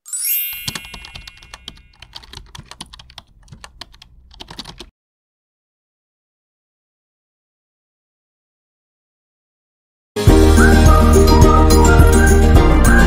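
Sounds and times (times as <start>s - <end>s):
chime ringing: 0.0s - 2.0s
keyboard typing clicks: 0.5s - 4.9s.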